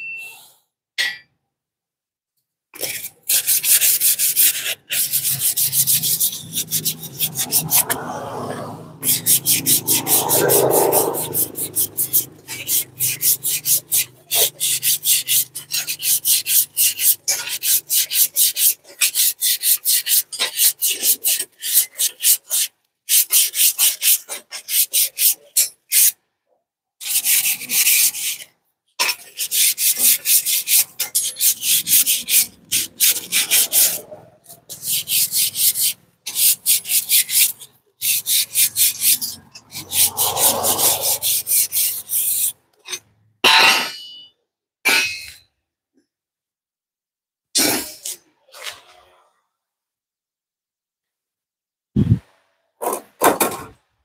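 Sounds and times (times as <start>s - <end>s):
abrasive rasping on steel spring: 27.2s - 44.3s.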